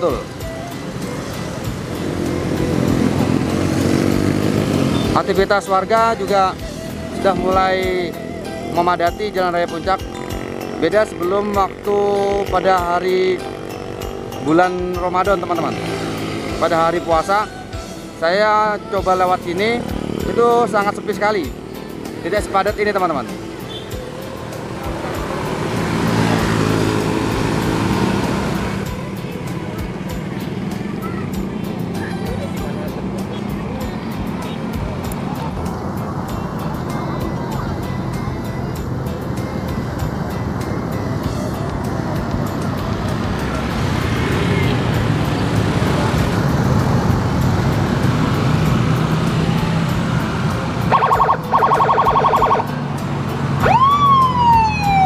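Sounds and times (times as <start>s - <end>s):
traffic on wet street: 0.0s - 55.0s
vehicle engine passing: 0.0s - 55.0s
siren wail rising: 50.8s - 52.8s, 53.6s - 55.0s
electronic siren yelping: 50.9s - 52.8s, 53.6s - 55.0s.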